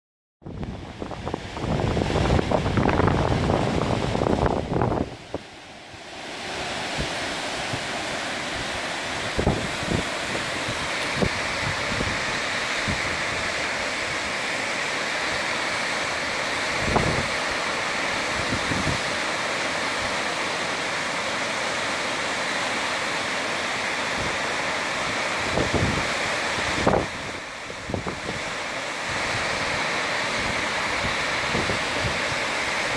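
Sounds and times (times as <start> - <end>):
wind buffeting microphone: 0.5 - 5.6, 6.2 - 14.2, 16.7 - 17.5, 18.2 - 19.1, 25.4 - 28.5, 30.4 - 32.4
waterfalls rushing: 0.5 - 32.9.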